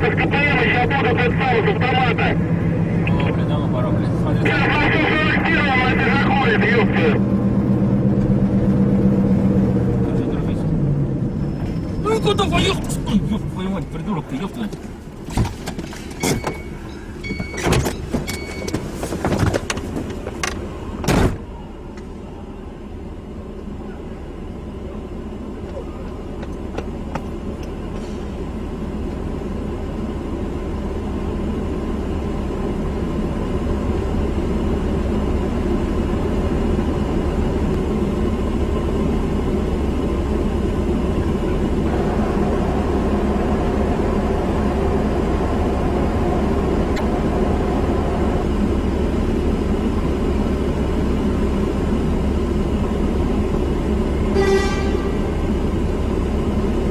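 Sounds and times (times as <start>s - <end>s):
car engine and road noise: 0.0s - 56.9s
car horn blast: 54.3s - 55.4s.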